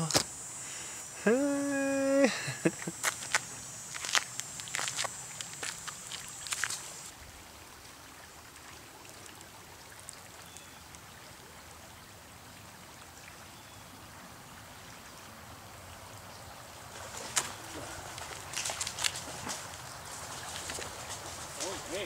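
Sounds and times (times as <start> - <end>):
river rushing over riffle: 15.9 - 22.0.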